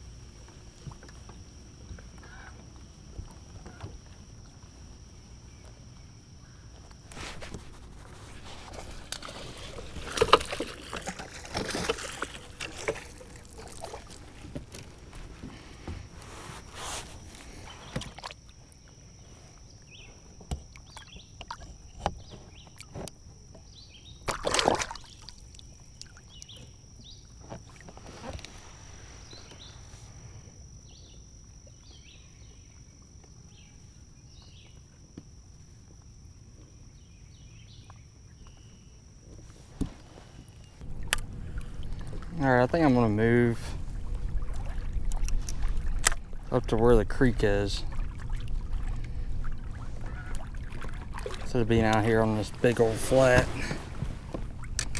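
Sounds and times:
water splashing against kayak: 0:06.7 - 0:29.8, 0:39.4 - 0:54.9
faint chirps: 0:28.2 - 0:34.9.

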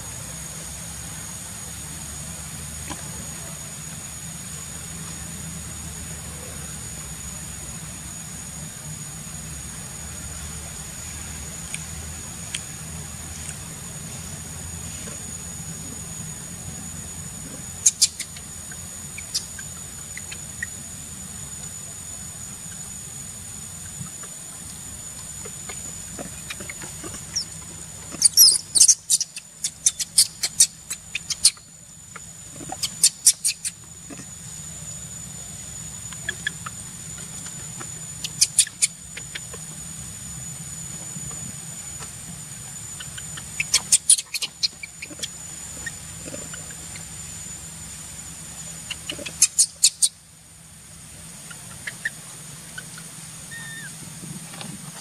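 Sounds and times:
baby monkey squealing: 0:17.8 - 0:18.5, 0:19.2 - 0:20.7, 0:26.4 - 0:31.6, 0:32.7 - 0:33.8, 0:38.2 - 0:39.5, 0:43.0 - 0:47.1, 0:48.9 - 0:50.2, 0:51.5 - 0:52.2, 0:52.8 - 0:54.0.

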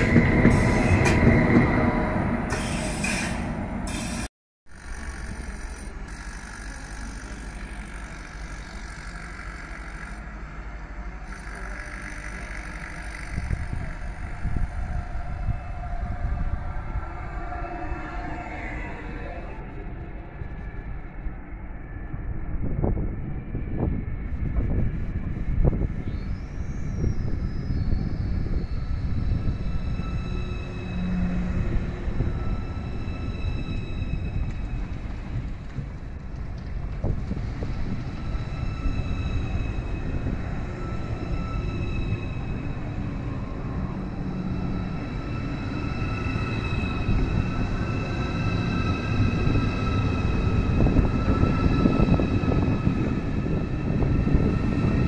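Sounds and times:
train wheels rumbling on rails: 0:00.0 - 0:04.3, 0:22.5 - 0:55.0
electric train drive whine: 0:04.7 - 0:55.0.

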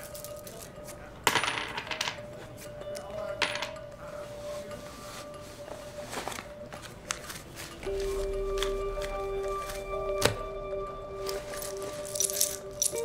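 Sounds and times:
metal jewelry clinking on desk: 0:00.0 - 0:03.8, 0:11.4 - 0:13.0.

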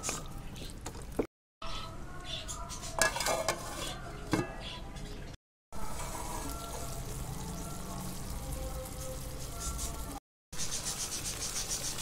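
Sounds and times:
potato slices sizzling in a pan: 0:05.8 - 0:12.0.

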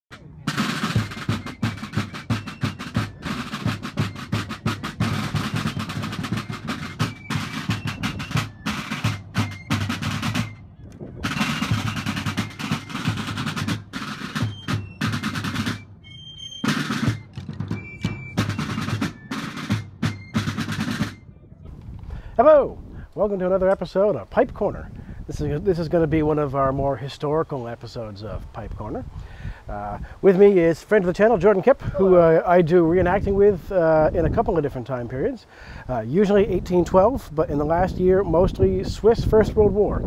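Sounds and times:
snare drum rolls: 0:00.1 - 0:10.6, 0:11.2 - 0:21.2.

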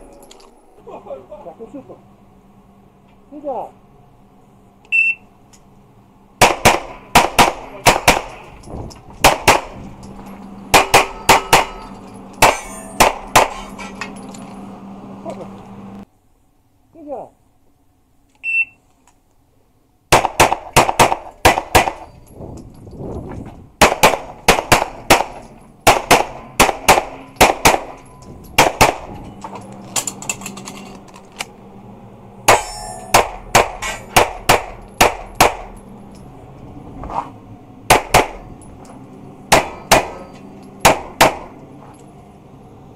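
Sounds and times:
shot timer beep: 0:04.9 - 0:05.3.

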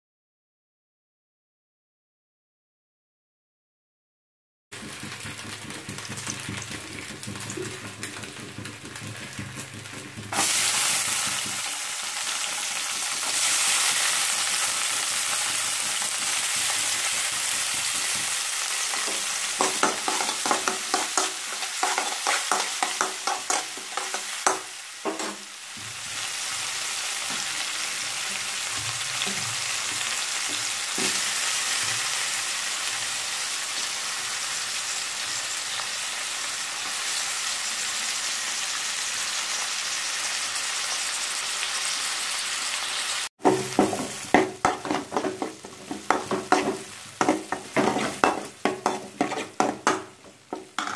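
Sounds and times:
onions sizzling in hot oil: 0:04.8 - 0:50.9
spatula stirring pan: 0:12.8 - 0:26.2, 0:43.4 - 0:50.9.

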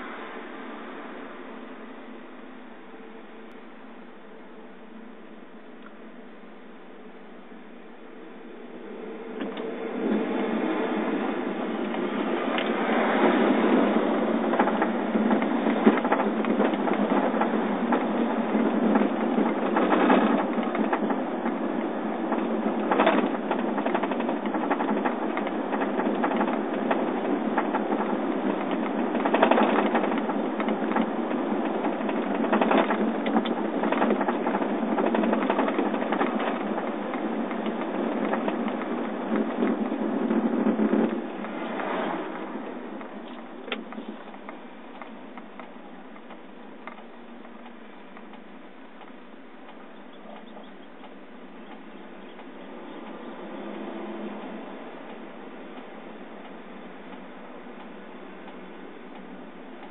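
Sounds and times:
car cabin road and engine noise: 0:35.2 - 0:59.9.

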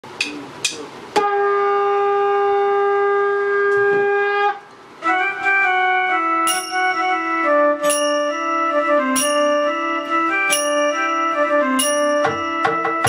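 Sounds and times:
electronic keyboard woodwind melody: 0:01.2 - 0:13.0
bright ringing strike: 0:06.5 - 0:13.0.

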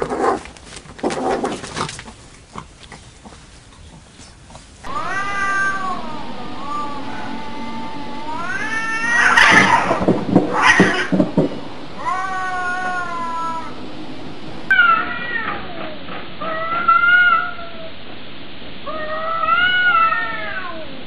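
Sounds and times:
cat yowling: 0:04.9 - 0:11.2, 0:12.0 - 0:13.8, 0:14.7 - 0:17.9, 0:18.9 - 0:20.9.

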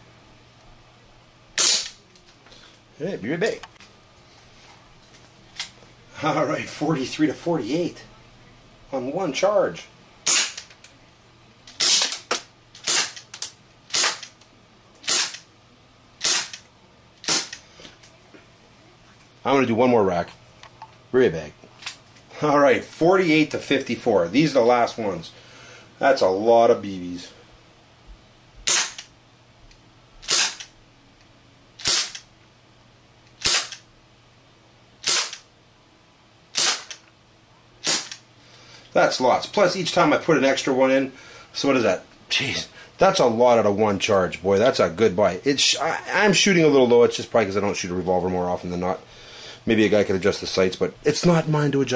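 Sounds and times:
airsoft revolver shots: 0:01.6 - 0:02.0, 0:10.3 - 0:10.6, 0:11.8 - 0:13.2, 0:13.9 - 0:14.3, 0:15.0 - 0:15.4, 0:16.2 - 0:16.6, 0:17.2 - 0:17.6, 0:28.7 - 0:29.0, 0:30.2 - 0:30.6, 0:31.8 - 0:32.2, 0:33.4 - 0:33.8, 0:35.0 - 0:35.4, 0:36.5 - 0:37.0, 0:37.8 - 0:38.2.

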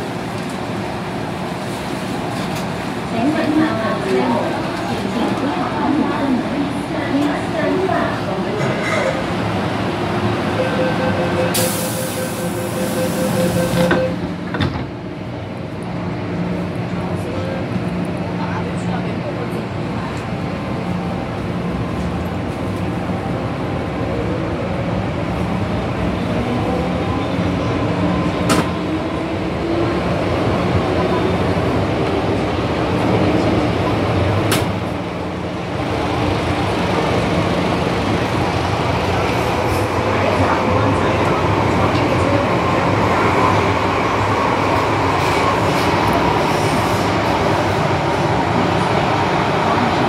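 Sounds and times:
train rumble: 0:00.0 - 0:50.0
rapid beeping warning tone: 0:10.6 - 0:14.2
train doors shutting with knocks: 0:28.4 - 0:28.8, 0:34.4 - 0:34.9.

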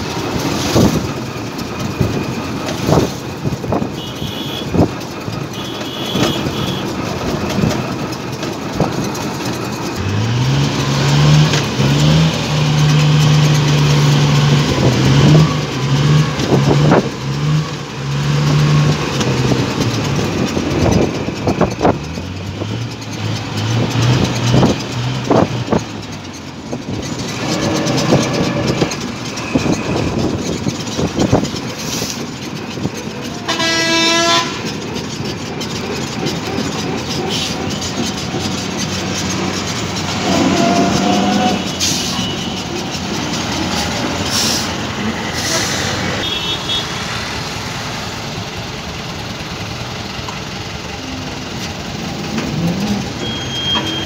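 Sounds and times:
vehicle engine and road noise: 0:00.0 - 0:54.0
vehicle horns: 0:03.7 - 0:07.0, 0:33.4 - 0:34.8, 0:40.1 - 0:42.8, 0:45.4 - 0:47.1, 0:53.2 - 0:54.0.

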